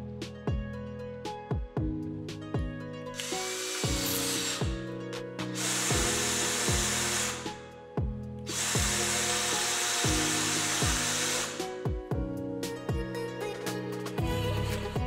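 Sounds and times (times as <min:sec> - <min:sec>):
background music with steady beat: 0:00.0 - 0:15.0
cordless drill motor running: 0:03.2 - 0:04.9, 0:05.5 - 0:07.7, 0:08.5 - 0:11.8.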